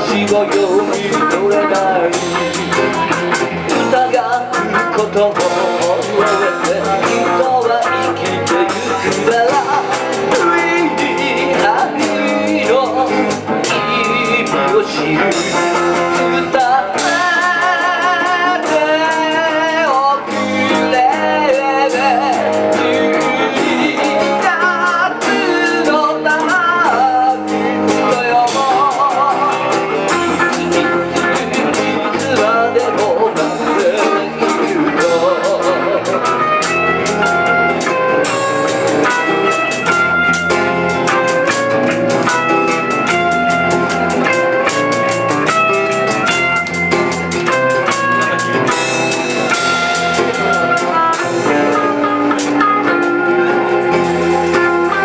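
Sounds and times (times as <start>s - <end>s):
drums keeping a steady beat: 0.0s - 55.0s
electric bass: 0.0s - 55.0s
electric guitar: 0.0s - 55.0s
instrumental melody of held notes: 0.0s - 55.0s
man singing with vibrato: 0.0s - 55.0s
strummed acoustic guitar: 0.0s - 55.0s.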